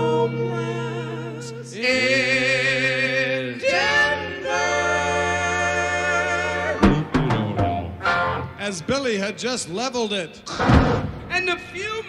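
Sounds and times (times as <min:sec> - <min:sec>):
voices singing in harmony: 0:00.0 - 0:08.5
rock band chords: 0:04.6 - 0:08.6
drum hits: 0:06.8 - 0:08.0, 0:10.6 - 0:11.4.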